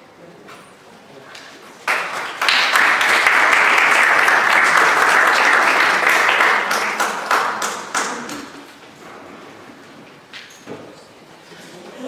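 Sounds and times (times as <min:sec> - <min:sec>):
audience applauding: 0:01.8 - 0:08.7.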